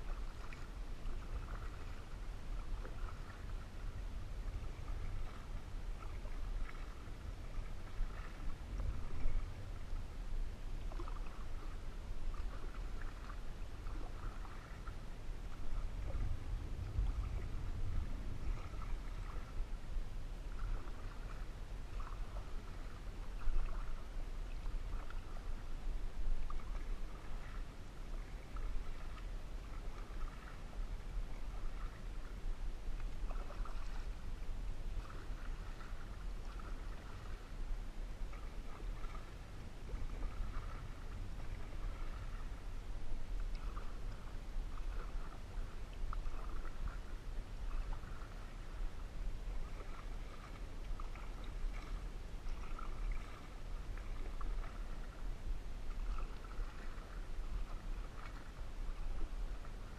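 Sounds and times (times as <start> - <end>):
paddle splashing in water: 0.0 - 59.9
low rumble: 3.0 - 27.4.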